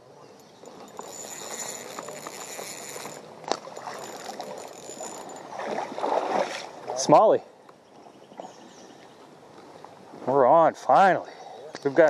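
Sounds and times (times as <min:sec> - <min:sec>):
fishing reel being cranked: 0:00.4 - 0:05.5
stream rushing: 0:01.0 - 0:07.2.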